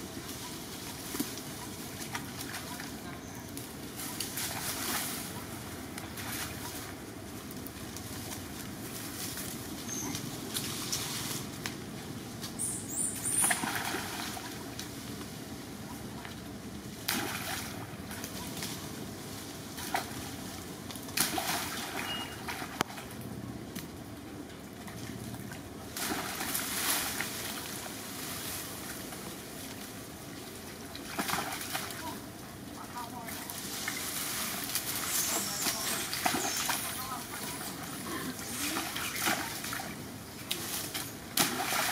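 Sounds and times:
stream running: 0:00.0 - 0:41.9
splashing in water: 0:13.2 - 0:14.8, 0:17.0 - 0:18.6, 0:21.1 - 0:23.1, 0:25.0 - 0:27.8, 0:30.8 - 0:32.2, 0:33.3 - 0:41.9
running water: 0:21.1 - 0:23.2, 0:30.2 - 0:41.9.

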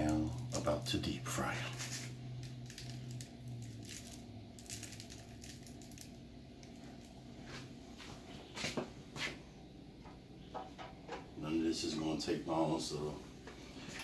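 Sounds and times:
low hum: 0:00.0 - 0:14.0
food rustling in fryer basket: 0:01.6 - 0:08.8.

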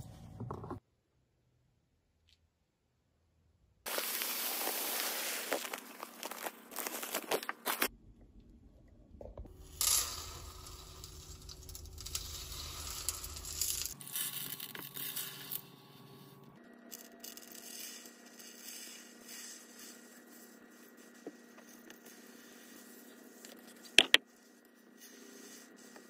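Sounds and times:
salt pouring: 0:03.9 - 0:06.0, 0:09.6 - 0:15.7
plastic bag crinkling: 0:03.9 - 0:07.9.

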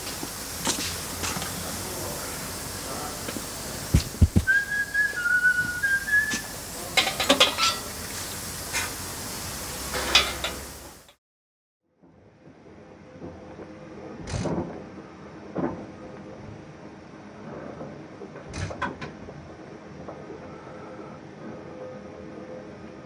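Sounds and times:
steady hiss: 0:00.0 - 0:11.2
thumps: 0:03.9 - 0:04.6
short high whistle: 0:04.4 - 0:06.6.

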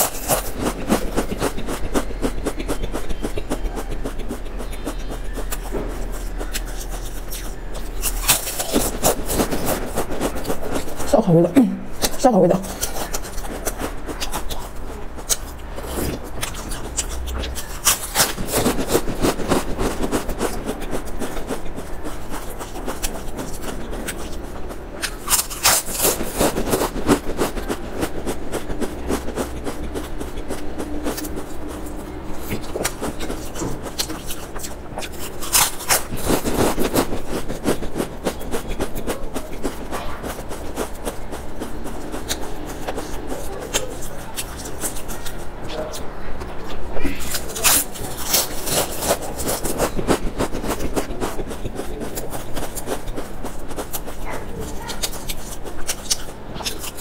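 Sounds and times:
crunching and chewing crisps: 0:00.0 - 0:57.0.

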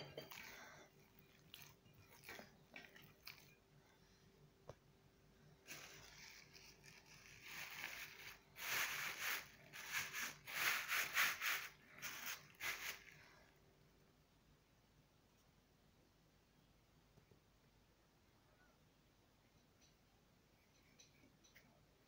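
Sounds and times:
plastic bag rustling and crinkling: 0:05.6 - 0:13.4.

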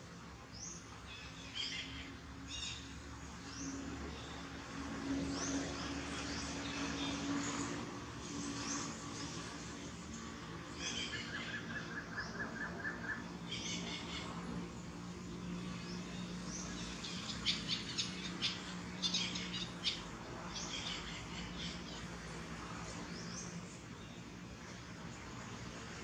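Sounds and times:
birds chirping: 0:10.7 - 0:22.2.

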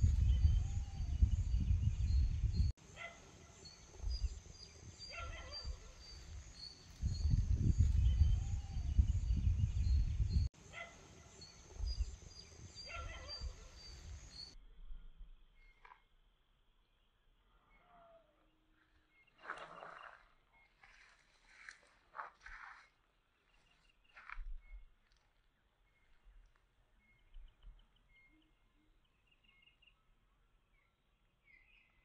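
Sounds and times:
wind rumbling on microphone: 0:00.0 - 0:02.7, 0:03.9 - 0:10.5, 0:11.6 - 0:15.2
distant animal calls: 0:05.0 - 0:06.2, 0:12.8 - 0:14.1.

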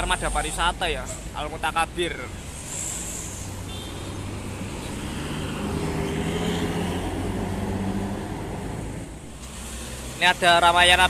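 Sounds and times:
road traffic: 0:00.0 - 0:11.0
coach diesel engine passing: 0:04.2 - 0:10.8.

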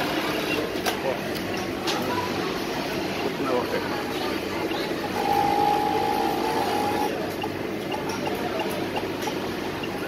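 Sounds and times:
electronic tone: 0:04.7 - 0:07.1.

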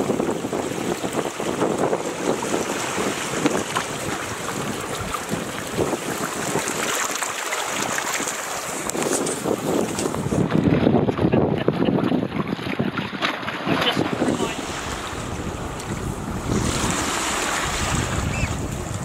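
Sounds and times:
water rushing along hull: 0:00.0 - 0:19.0
wind buffeting microphone: 0:00.0 - 0:19.0.

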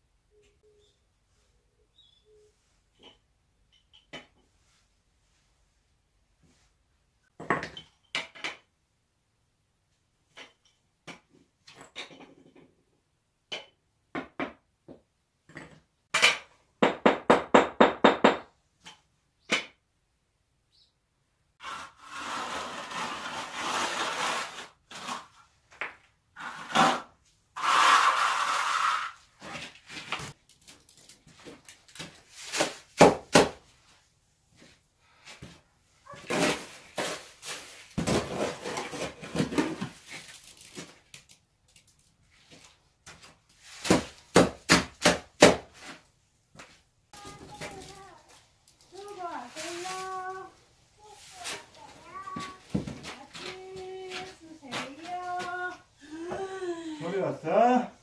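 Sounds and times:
shovel scraping mortar: 0:21.6 - 0:25.5, 0:26.4 - 0:30.3, 0:36.2 - 0:40.0.

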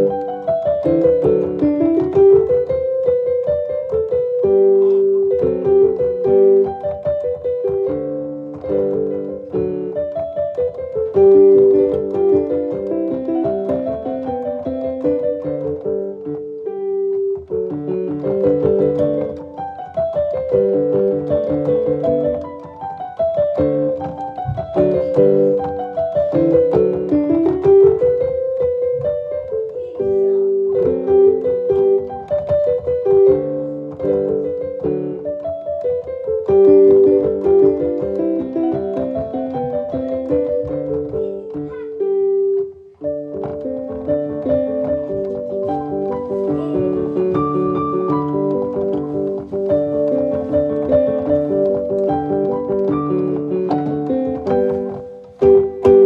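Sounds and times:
piano music: 0:00.0 - 0:56.0.

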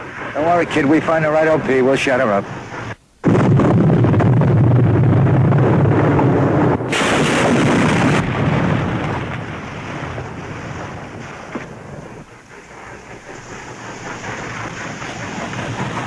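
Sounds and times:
artillery shell explosion: 0:03.2 - 0:12.3.

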